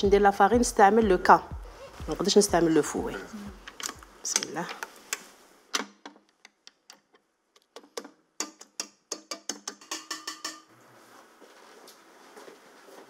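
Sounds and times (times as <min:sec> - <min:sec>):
whisk tapping metal bowl: 0:08.4 - 0:10.7.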